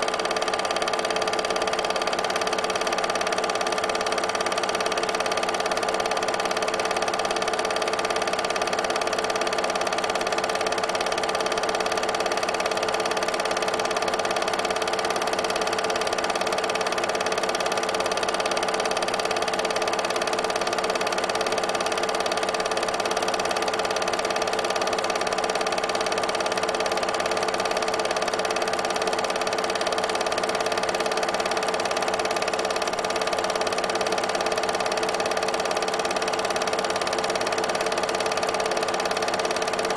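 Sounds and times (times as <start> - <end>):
film projector whirring: 0.0 - 39.9.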